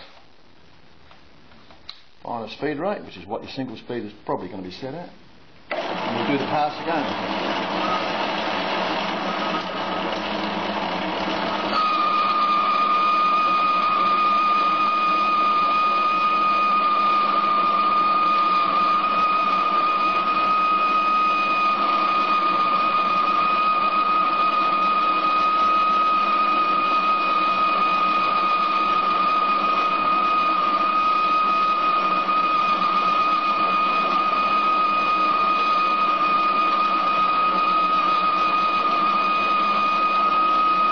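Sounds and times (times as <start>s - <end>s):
lathe boring steel: 5.7s - 40.9s
high-pitched whine: 11.2s - 40.9s.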